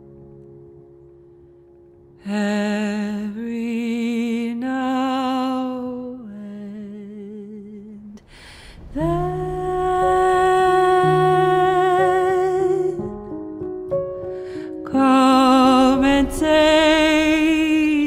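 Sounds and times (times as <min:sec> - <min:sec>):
wordless sung vocal: 0:02.2 - 0:13.2, 0:14.6 - 0:18.0.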